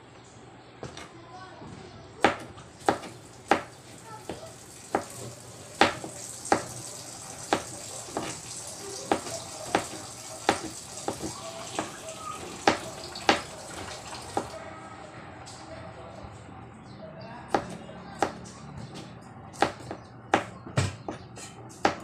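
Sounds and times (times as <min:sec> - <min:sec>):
knife chopping on plastic board: 0:02.2 - 0:03.7, 0:04.3 - 0:05.1, 0:05.8 - 0:06.8, 0:07.5 - 0:08.4, 0:09.1 - 0:12.0, 0:12.6 - 0:13.5, 0:19.5 - 0:22.0.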